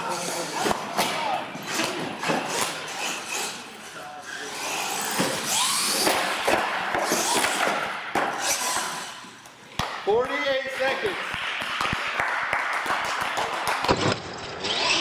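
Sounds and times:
toy truck electric motor whining: 2.5 - 6.4, 7.0 - 7.6, 8.4 - 9.3, 14.2 - 15.0
toy truck crashing on concrete: 13.8 - 15.0.

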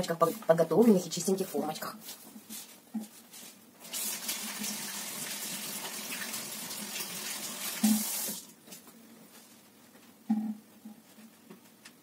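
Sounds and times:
water tap running: 3.8 - 8.5.

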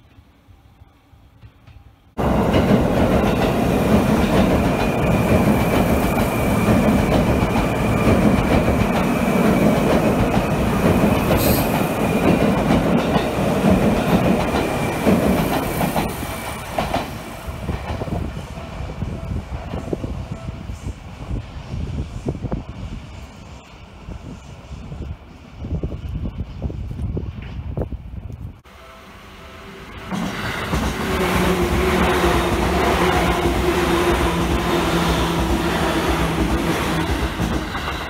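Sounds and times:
train wheels clattering on rails: 1.4 - 18.6, 30.0 - 38.0.

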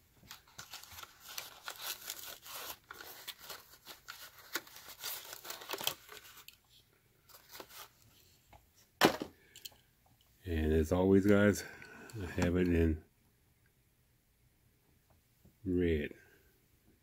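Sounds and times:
packaging rustling and crinkling: 0.2 - 8.1.

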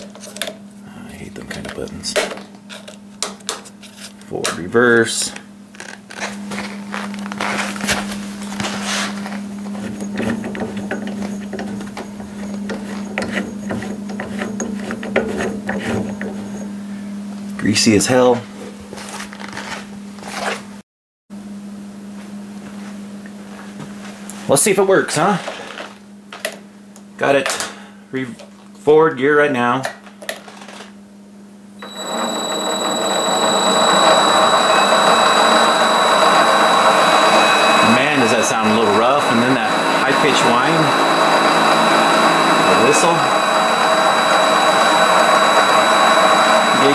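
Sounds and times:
lathe carriage clicking and rubbing: 9.8 - 16.6
mini lathe whining: 31.8 - 46.9
steady low hum: 31.8 - 46.9.

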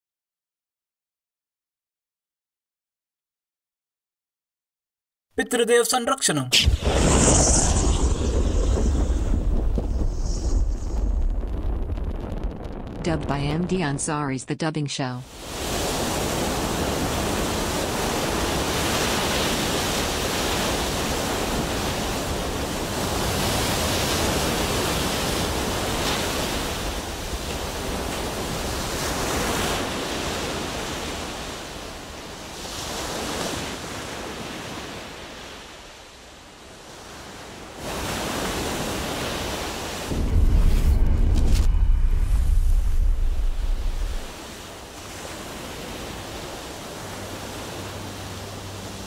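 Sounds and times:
ocean waves breaking: 15.2 - 49.0.

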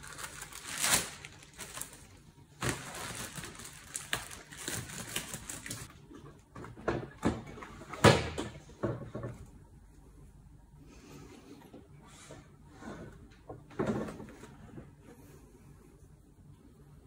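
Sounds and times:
plastic wrap crackling: 0.0 - 5.9.

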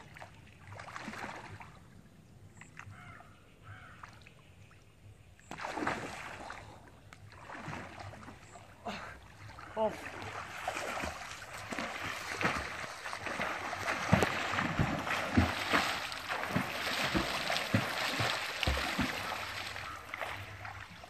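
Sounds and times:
water splashing from swimming strokes: 5.4 - 21.0.

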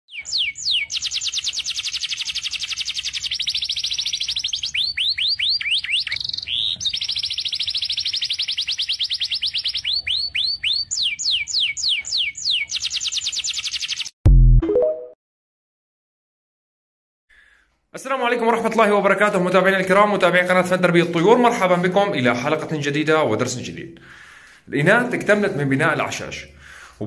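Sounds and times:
canary singing trills: 0.1 - 14.1.

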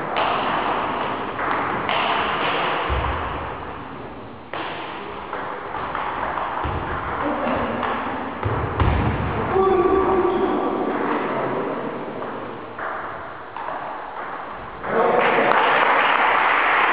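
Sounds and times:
ball thuds on floor: 4.6 - 7.2, 8.4 - 9.4.

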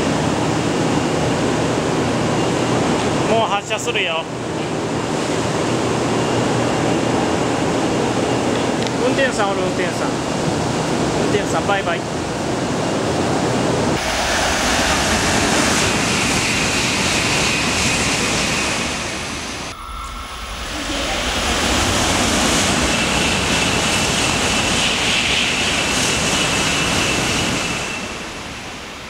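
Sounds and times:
high-speed train passing: 0.0 - 29.0
high whine: 12.9 - 29.0.

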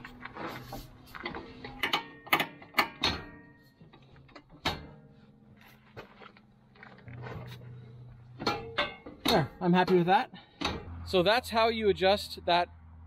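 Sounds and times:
sharp metallic clicks and clunks: 1.2 - 5.2, 6.4 - 11.2.

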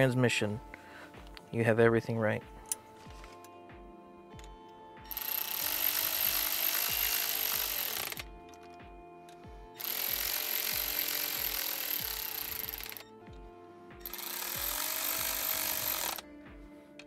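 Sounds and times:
cordless electric ratchet running: 5.1 - 8.7, 9.8 - 13.0, 14.0 - 16.2.

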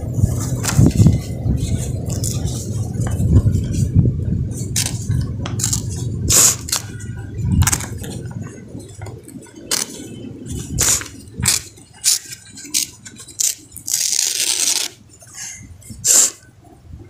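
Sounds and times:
low handling rumble: 0.0 - 17.0.

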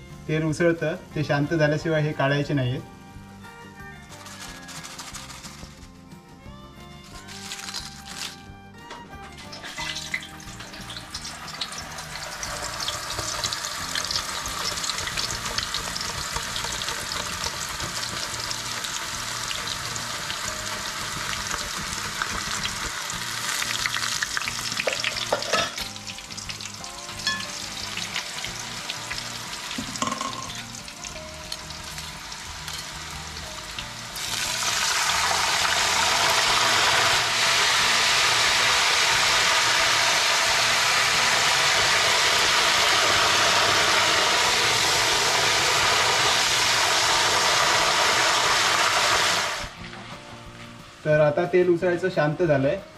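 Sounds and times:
slices deep-frying in hot oil: 7.0 - 8.4, 9.3 - 49.8.

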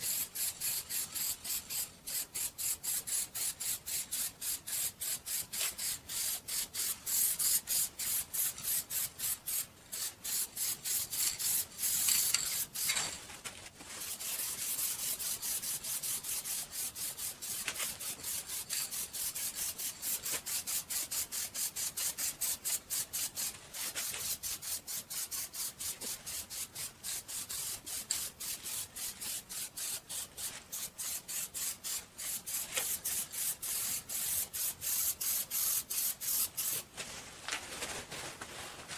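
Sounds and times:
hand sanding wood: 14.0 - 36.9.

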